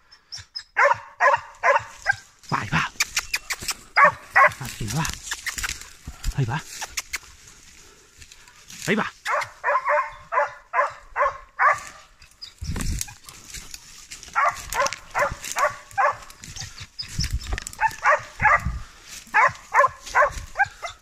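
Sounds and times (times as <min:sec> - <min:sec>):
hound baying: 0:00.5 - 0:02.3, 0:03.9 - 0:05.9, 0:09.2 - 0:21.0.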